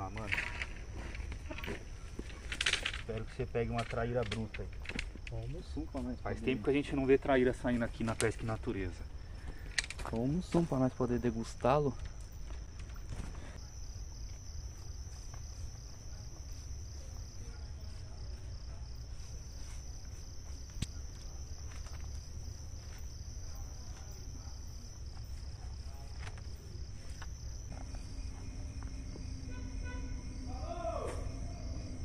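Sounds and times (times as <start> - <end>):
insects chirping: 0.0 - 32.0
lower chirping: 26.5 - 32.0
low background rumble: 26.7 - 32.0.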